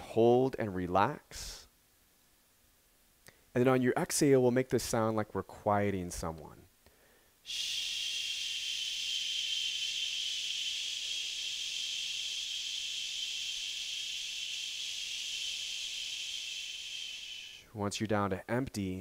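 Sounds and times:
man exhaling shh through teeth: 7.0 - 17.7.

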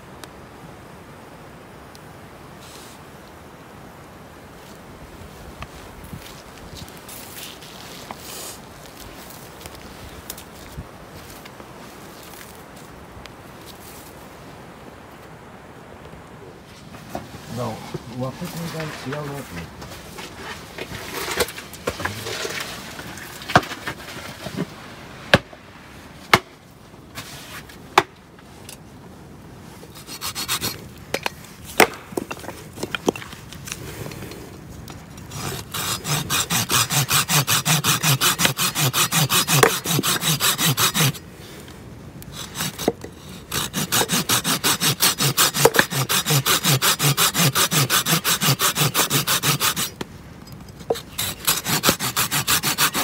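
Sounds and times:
hand saw cutting log: 17.5 - 24.7, 29.9 - 32.0, 35.2 - 41.2, 42.3 - 50.0, 50.9 - 53.0.

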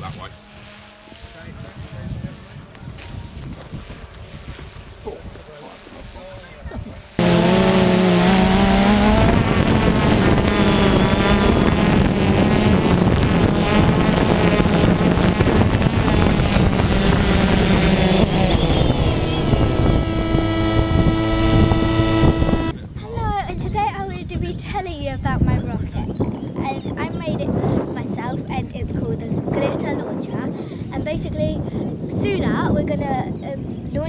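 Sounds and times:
engine revving: 7.2 - 22.7.

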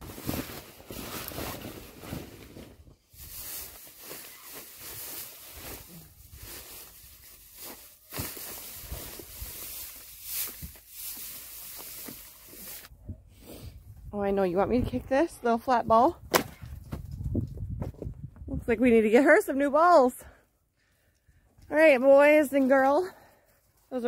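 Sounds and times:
dry hay rustling: 0.0 - 12.9.

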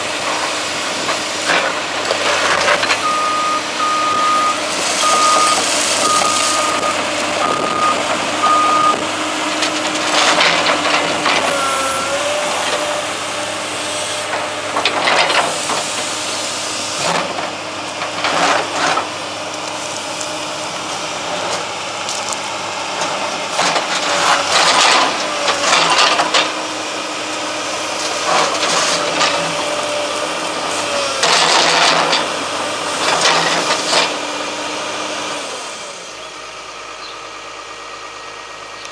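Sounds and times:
excavator engine and hydraulics: 0.0 - 38.9
excavator travel alarm beeps: 3.0 - 9.0, 11.5 - 12.2.

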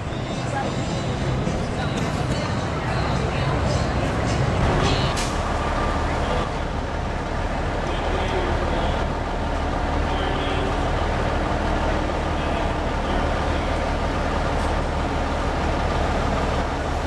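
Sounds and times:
truck diesel engine rumbling: 0.0 - 17.0.

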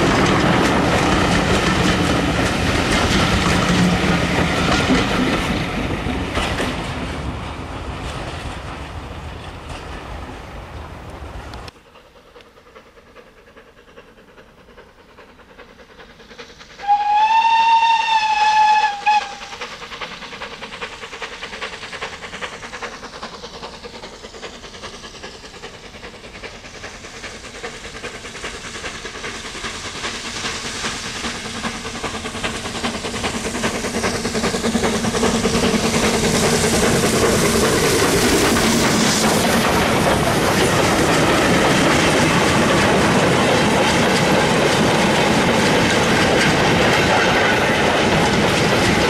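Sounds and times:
steam locomotive exhaust beats: 0.0 - 49.0
train running noise: 0.0 - 49.0
steam locomotive whistle: 16.8 - 19.6.

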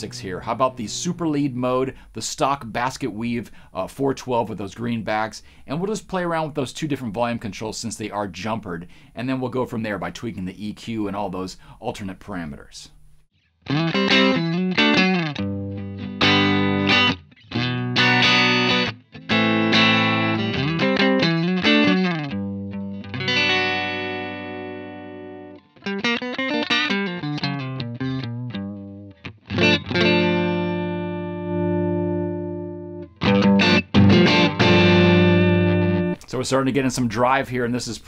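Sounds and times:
electric guitar chords and riffs: 13.7 - 36.2.

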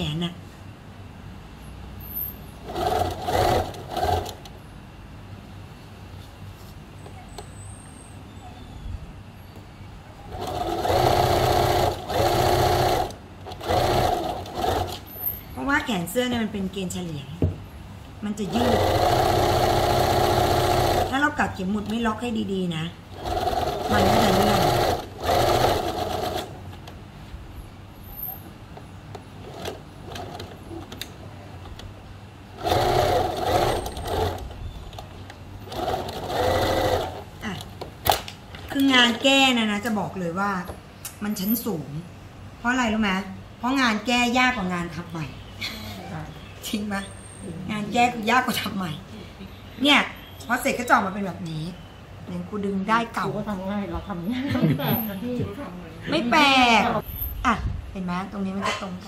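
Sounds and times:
sewing machine stitching: 2.6 - 4.5, 10.3 - 15.3, 18.5 - 21.3, 23.1 - 26.6, 32.6 - 34.5, 35.7 - 37.3.

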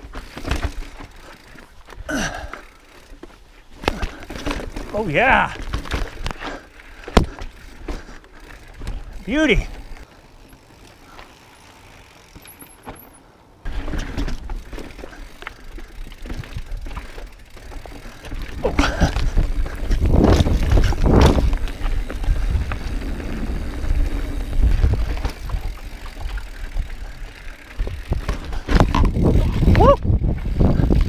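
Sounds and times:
bike rattling over rocks: 0.0 - 31.0
wind rumbling on microphone: 18.4 - 31.0.

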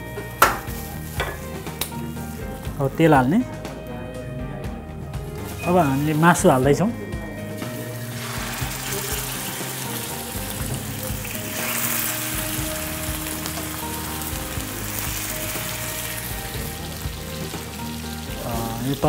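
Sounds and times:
chicken sizzling in frying pan: 0.0 - 3.3, 7.5 - 19.0.

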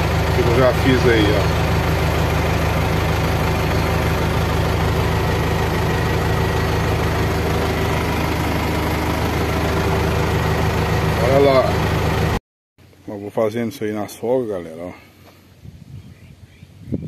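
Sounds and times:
diesel engine running steadily: 0.0 - 13.1.

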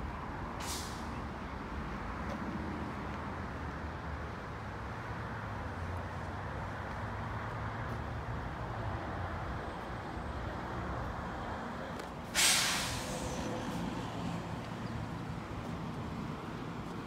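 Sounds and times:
sudden loud hiss: 12.4 - 13.4.

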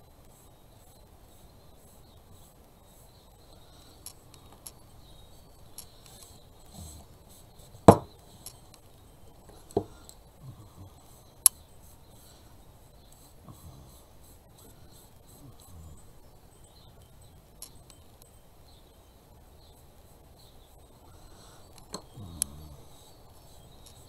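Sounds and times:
rag rustling on wood: 5.7 - 8.7, 9.4 - 10.1
object knocking on work surface: 7.9 - 8.1.

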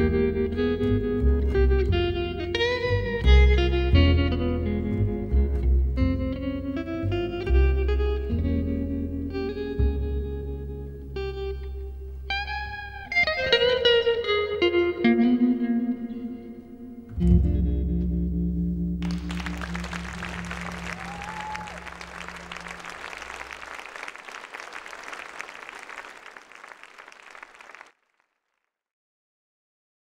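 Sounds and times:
audience applause: 19.0 - 28.0.

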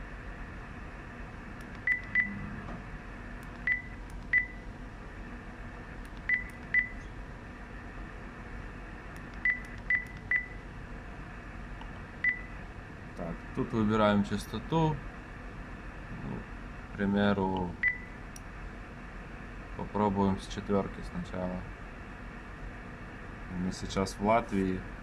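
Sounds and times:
steady low hum: 0.0 - 25.0
short high keypad beeps: 1.9 - 2.4, 3.7 - 4.6.

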